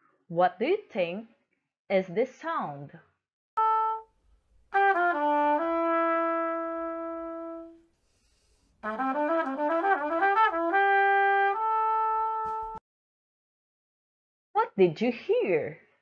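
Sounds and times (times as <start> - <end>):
trumpet melody: 3.6 - 12.8.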